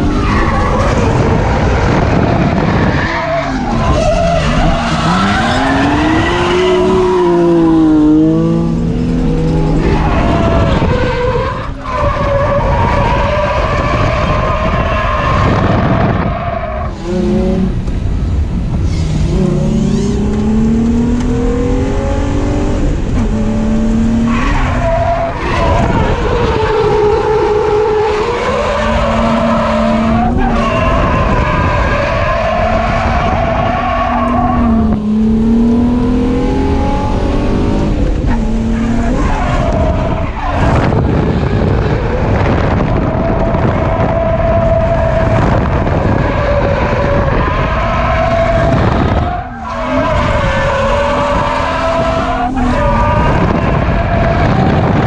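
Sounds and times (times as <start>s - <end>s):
car engine revving hard: 4.2s - 10.9s, 16.9s - 17.9s, 18.7s - 55.0s.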